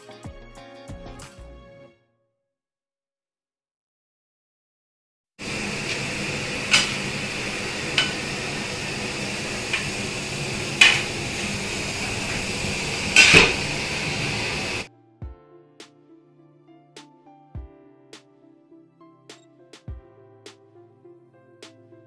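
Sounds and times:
gas burners hissing: 0:05.4 - 0:14.9
utensils clanging on metal pots: 0:05.6 - 0:14.8.

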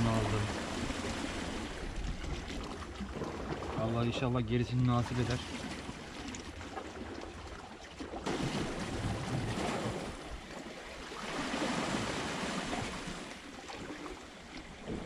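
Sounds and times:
sea waves washing against rocks: 0:00.0 - 0:06.1, 0:08.2 - 0:10.4, 0:11.1 - 0:14.0.

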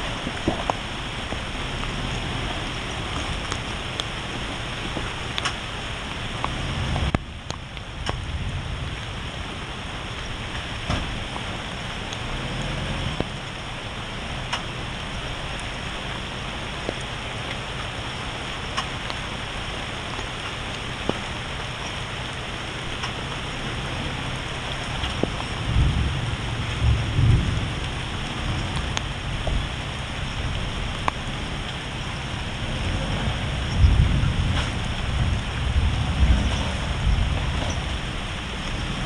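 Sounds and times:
low vehicle rumble: 0:00.0 - 0:39.0
rain hissing on foliage: 0:00.0 - 0:39.0.

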